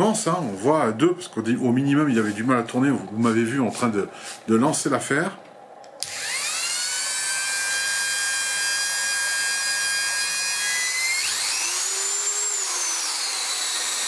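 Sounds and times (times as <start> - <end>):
rotary tool motor whining: 6.0 - 14.0.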